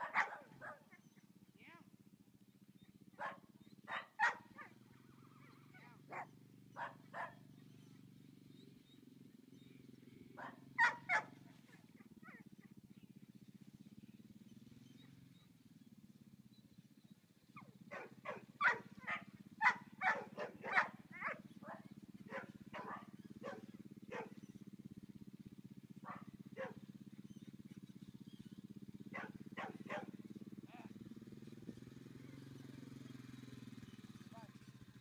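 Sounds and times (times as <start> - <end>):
dog barking: 0.0 - 1.1, 3.2 - 4.8, 6.1 - 7.4, 10.4 - 12.8, 17.6 - 24.5, 26.0 - 26.8, 29.1 - 30.2
quad bike engine idling: 0.0 - 35.0.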